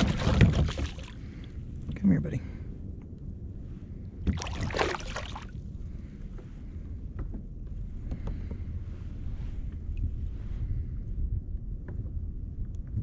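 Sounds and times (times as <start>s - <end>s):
fish splashing at water surface: 0.0s - 1.2s, 4.3s - 5.5s
wind rumble on microphone: 0.0s - 13.0s.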